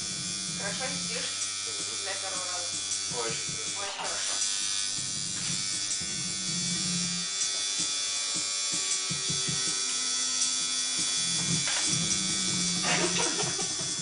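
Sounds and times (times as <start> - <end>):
tattoo machine buzzing: 0.0 - 14.0.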